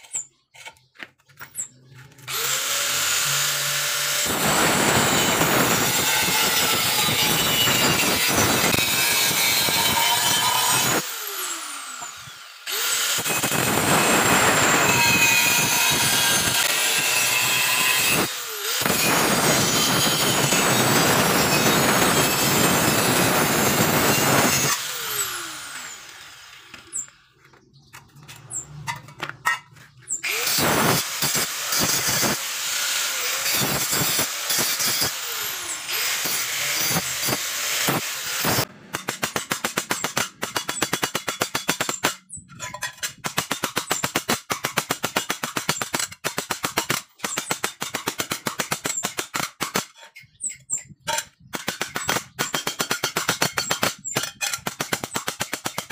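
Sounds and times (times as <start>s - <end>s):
angle grinder cutting steel: 1.4s - 27.2s, 28.4s - 55.9s
grinder disc winding down: 17.4s - 27.1s.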